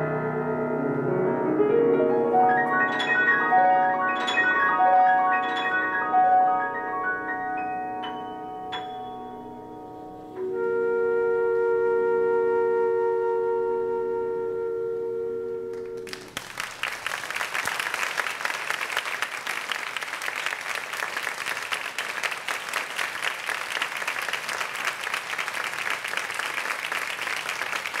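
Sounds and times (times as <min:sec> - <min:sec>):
music final chord: 0:00.7 - 0:11.9
audience applause: 0:16.0 - 0:28.0.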